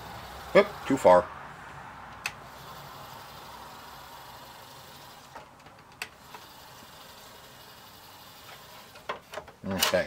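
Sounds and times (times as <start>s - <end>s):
cd changer motor whirring: 0.0s - 1.0s, 2.3s - 5.5s, 6.1s - 9.1s.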